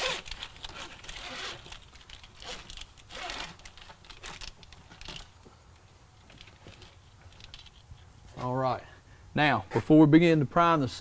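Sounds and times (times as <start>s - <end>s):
crinkling and scratchy rustling: 0.0s - 8.6s.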